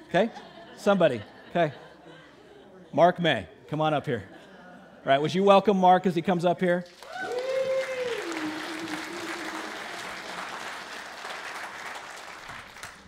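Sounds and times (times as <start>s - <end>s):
congregation applauding: 6.8s - 13.0s
drawn-out vocal cheer: 7.0s - 11.3s.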